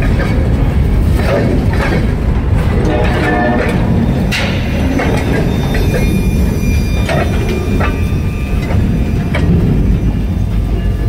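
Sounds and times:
freight train rumbling: 0.0 - 11.0
wheels clunking over rail: 0.0 - 11.0
faint wheel squeal: 4.2 - 9.3.

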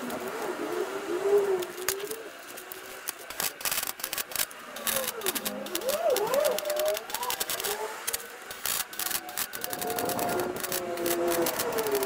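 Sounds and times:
welding arc crackling: 1.5 - 12.0.

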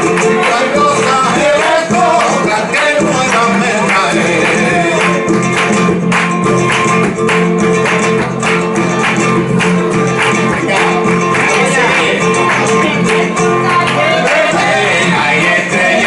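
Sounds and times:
men singing: 0.0 - 5.8, 10.4 - 16.0
hand-clapping: 0.0 - 16.0
nylon-string guitar: 0.0 - 16.0.

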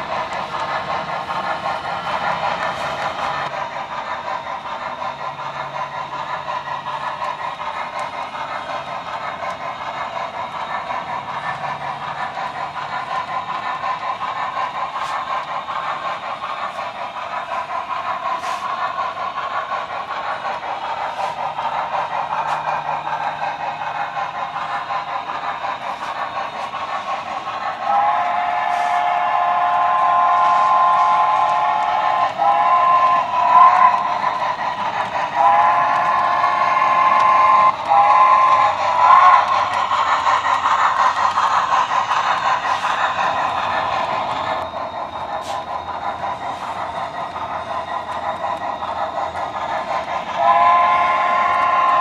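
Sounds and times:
model steam locomotive running: 0.0 - 52.0
two-note steam whistle: 27.8 - 34.1, 35.3 - 39.6, 42.7 - 47.3, 50.2 - 52.0.

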